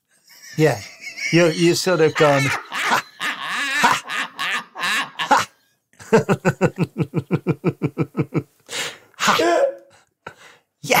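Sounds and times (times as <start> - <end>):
man laughing: 0.3 - 8.5
man's voice: 0.6 - 3.0, 9.2 - 10.0.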